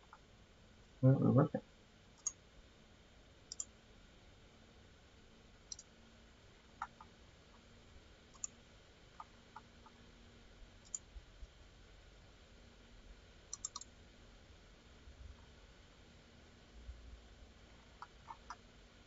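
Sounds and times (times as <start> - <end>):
faint steady hum: 0.0 - 19.0
computer mouse clicking: 2.2 - 2.4, 3.5 - 3.7, 5.7 - 5.9, 6.8 - 7.6, 8.3 - 8.6, 10.8 - 11.1, 13.5 - 13.9, 18.0 - 18.6.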